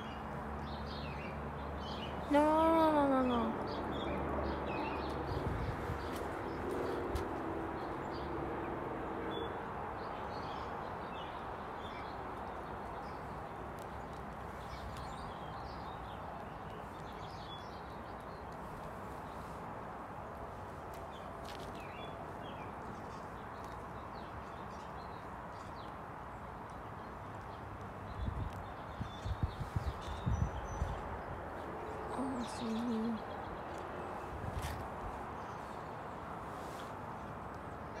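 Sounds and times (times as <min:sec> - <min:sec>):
small birds chirping: 0:09.4 - 0:38.0.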